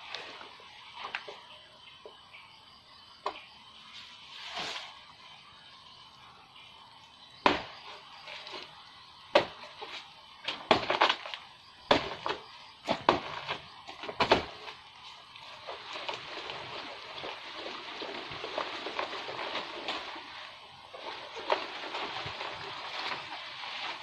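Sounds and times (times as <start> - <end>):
leaves rustling: 0.0 - 1.6, 3.7 - 24.0
knocks and snaps of climbing: 9.4 - 14.8.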